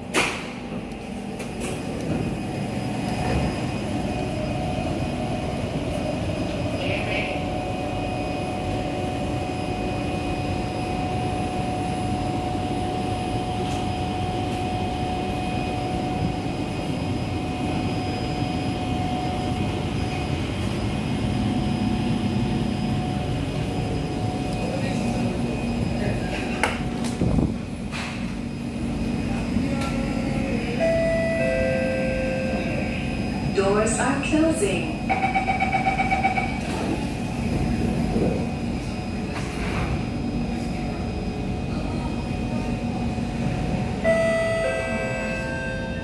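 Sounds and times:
train air-conditioning hum: 0:00.0 - 0:46.0.

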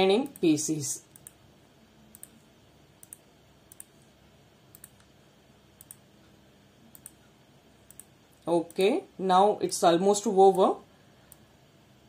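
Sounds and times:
low room hiss: 0:00.0 - 0:12.0
computer mouse clicks: 0:01.1 - 0:01.4, 0:02.1 - 0:04.1, 0:04.7 - 0:05.1, 0:05.8 - 0:06.1, 0:06.9 - 0:08.8.

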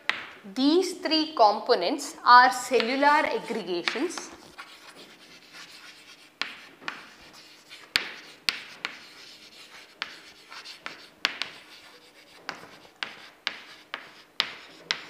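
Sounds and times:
chalk tapping on board: 0:02.7 - 0:03.1, 0:03.8 - 0:15.0
chalk scratching on chalkboard: 0:02.7 - 0:15.0.

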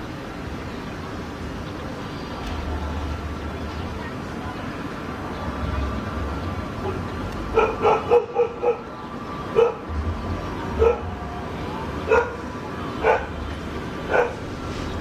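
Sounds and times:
dog barking: 0:06.8 - 0:08.9, 0:09.6 - 0:09.8, 0:10.8 - 0:11.1, 0:12.1 - 0:12.4, 0:13.0 - 0:13.4, 0:14.1 - 0:14.4.

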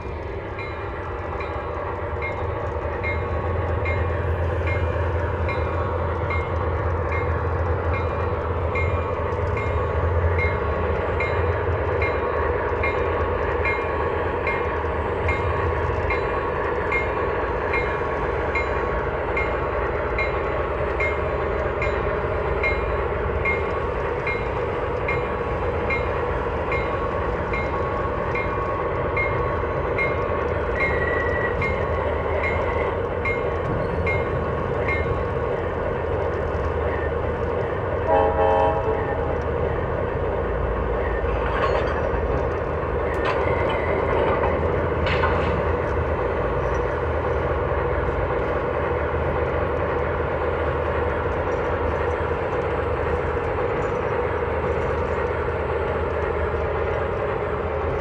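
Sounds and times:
short horn blast: 0:38.1 - 0:38.9.

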